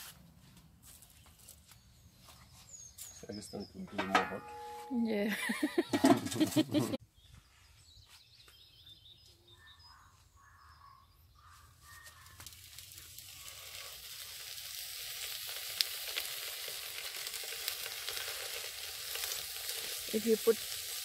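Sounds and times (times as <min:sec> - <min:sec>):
fish sizzling on a grill: 0:11.7 - 0:21.0.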